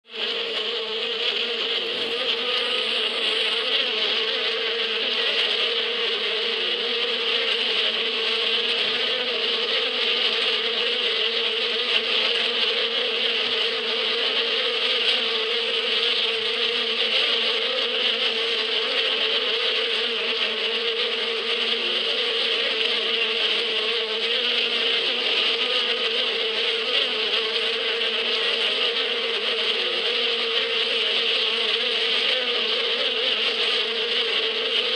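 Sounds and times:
honeybees buzzing: 0:00.1 - 0:34.9.

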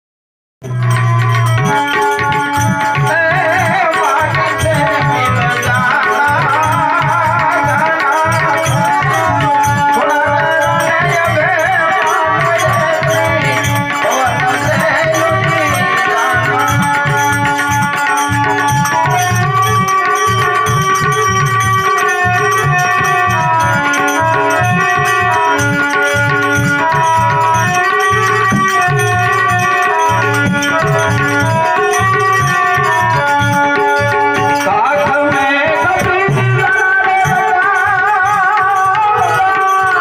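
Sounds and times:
held melody notes: 0:00.6 - 0:40.0
man singing: 0:00.6 - 0:40.0
tabla beat: 0:00.6 - 0:40.0.

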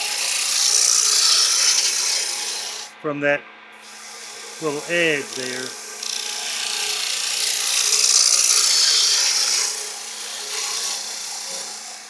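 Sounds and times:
lathe tool hissing on wood: 0:00.0 - 0:02.9, 0:03.8 - 0:12.0.

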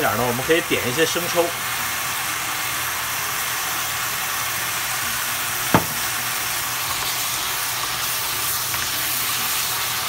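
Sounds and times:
food sizzling in a pan: 0:00.0 - 0:10.0
sharp knock: 0:05.8 - 0:06.1.

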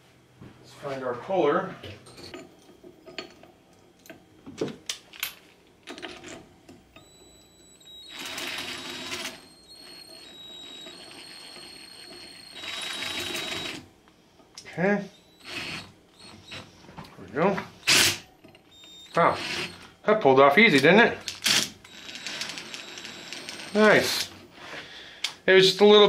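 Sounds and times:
cordless drill whirring: 0:07.0 - 0:13.8, 0:15.1 - 0:16.8, 0:17.8 - 0:20.0, 0:21.2 - 0:24.4.

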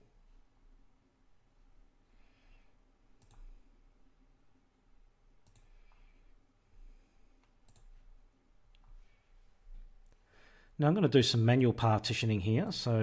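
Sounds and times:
computer mouse buttons clicking: 0:03.2 - 0:03.5, 0:05.4 - 0:05.7, 0:07.6 - 0:07.9.

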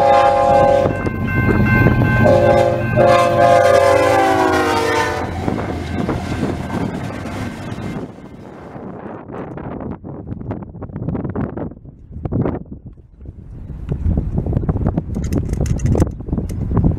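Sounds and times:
locomotive air horn blasts: 0:00.0 - 0:01.0, 0:02.2 - 0:05.4
train engines and wheels rumbling: 0:00.0 - 0:16.9.

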